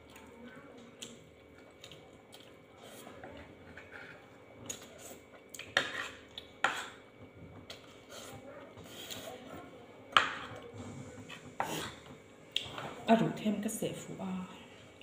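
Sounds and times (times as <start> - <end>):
metal spoon scraping a plate: 5.8 - 7.0.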